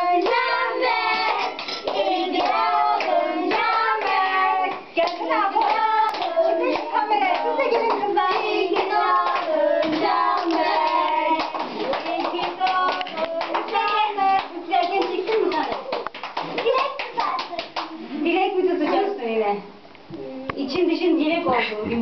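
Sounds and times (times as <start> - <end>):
children singing a birthday song: 0.0 - 15.3
hands clapping: 5.0 - 18.0.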